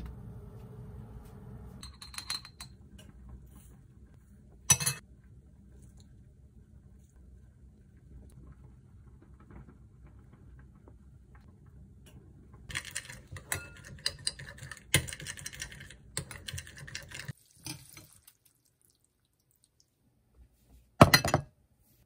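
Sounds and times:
faint low hum: 0.0 - 12.7.

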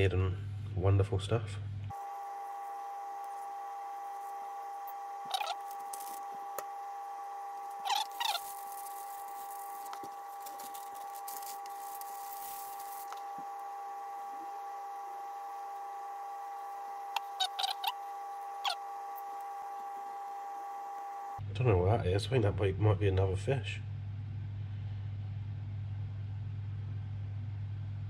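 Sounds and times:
steady high whine: 0.0 - 21.5
squid squeaking when handled: 5.2 - 6.2, 7.6 - 9.9, 17.1 - 19.3
newspaper rustling: 7.8 - 13.3.

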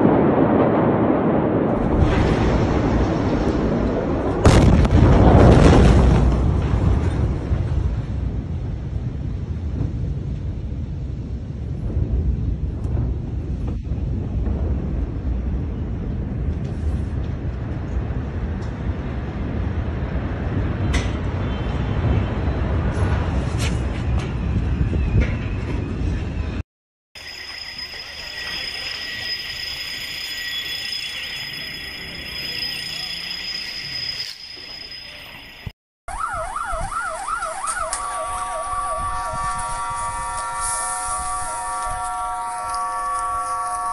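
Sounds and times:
steady low rumble: 0.0 - 21.4
emergency siren sweeping: 27.2 - 43.9
steady siren tones: 27.2 - 43.9
warbling alarm tone: 27.2 - 43.9.

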